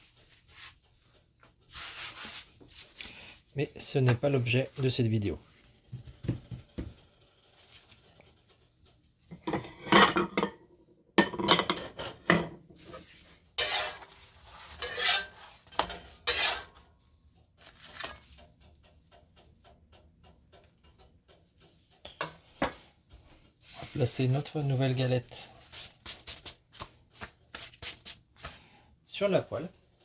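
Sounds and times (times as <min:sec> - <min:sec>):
spatula scraping a griddle pan: 0:12.8 - 0:16.8.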